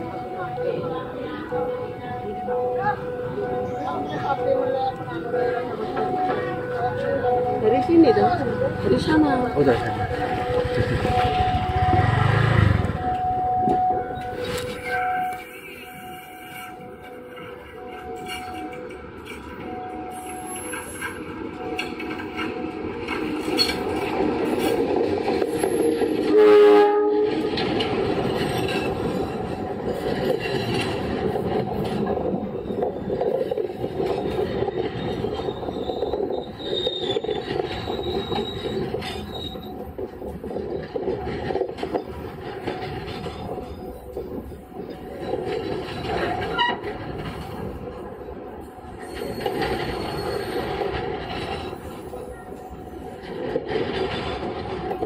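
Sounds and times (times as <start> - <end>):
locomotive horn: 8.8 - 19.0, 26.2 - 27.7, 46.4 - 47.0
train wheels clattering on rails: 8.9 - 55.0
high wheel squeals: 34.8 - 40.0, 49.0 - 51.8.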